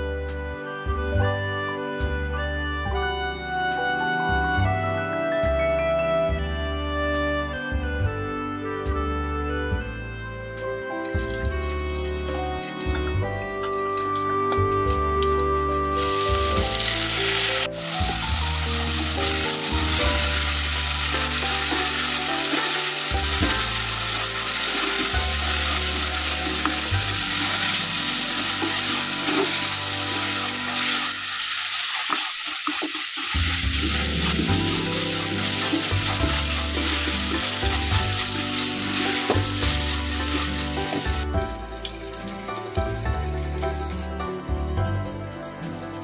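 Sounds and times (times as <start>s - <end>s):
background music: 0.0s - 32.0s, 33.0s - 46.0s
vegetables sizzling in hot oil: 15.9s - 41.4s.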